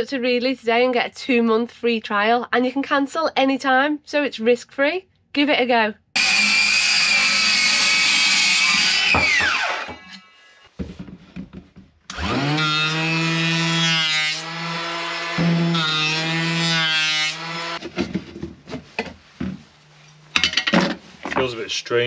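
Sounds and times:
power tool spinning down: 0:06.2 - 0:10.3, 0:12.1 - 0:16.7
power tool running: 0:06.2 - 0:10.4, 0:12.1 - 0:17.8.

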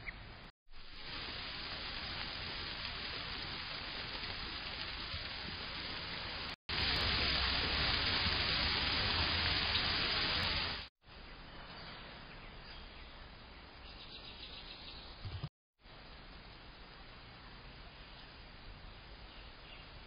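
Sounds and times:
steady microphone hiss: 0:00.0 - 0:20.0.

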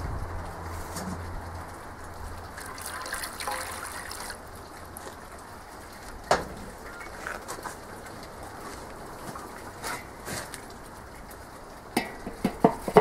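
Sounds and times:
water pouring into metal tray: 0:00.9 - 0:05.0.

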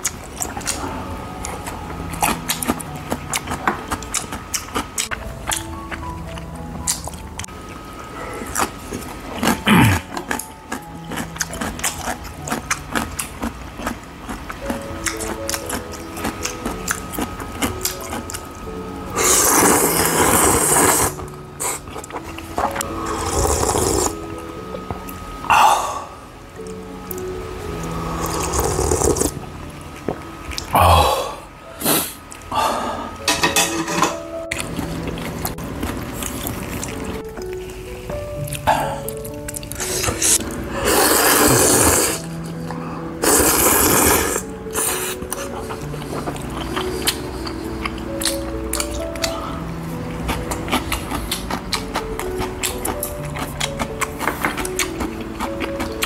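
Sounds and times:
soft background music: 0:00.0 - 0:56.0
man slurping: 0:09.5 - 0:10.2, 0:19.2 - 0:21.9, 0:23.1 - 0:24.2, 0:28.2 - 0:29.4, 0:30.6 - 0:33.0, 0:39.8 - 0:42.3, 0:43.2 - 0:45.2
man exhaling ah: 0:25.5 - 0:26.2, 0:30.7 - 0:33.2.

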